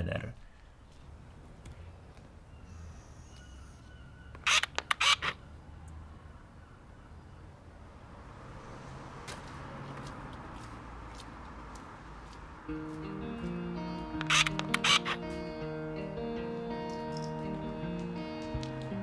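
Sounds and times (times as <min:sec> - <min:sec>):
faint high chirps: 0:02.5 - 0:04.4.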